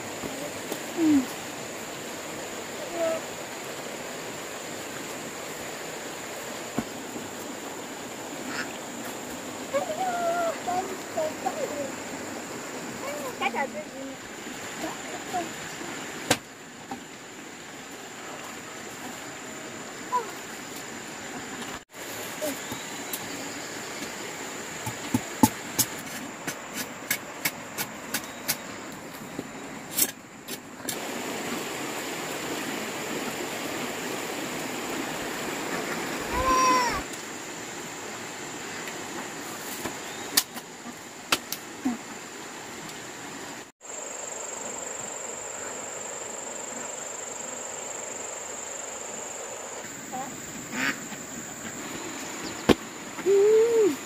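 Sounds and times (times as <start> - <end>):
high insect drone: 0.0 - 54.0
mountain stream rushing: 0.0 - 54.0.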